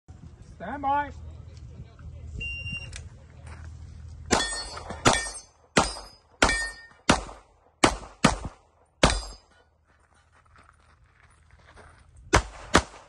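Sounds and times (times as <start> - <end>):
handgun shots: 4.3 - 9.4, 12.3 - 13.0.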